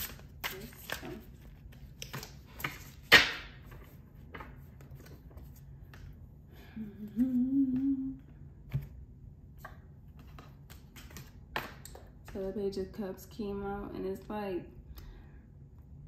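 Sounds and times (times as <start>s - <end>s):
woman humming: 6.6s - 8.4s.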